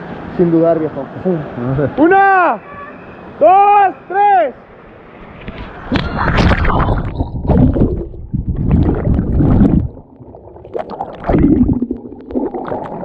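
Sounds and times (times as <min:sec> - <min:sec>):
muffled water churning and gurgling: 0:05.7 - 0:13.0.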